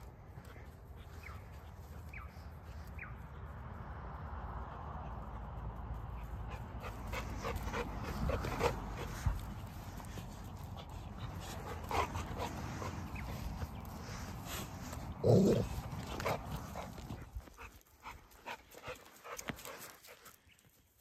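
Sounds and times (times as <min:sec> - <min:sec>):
dog breathing quickly: 0:04.8 - 0:20.4.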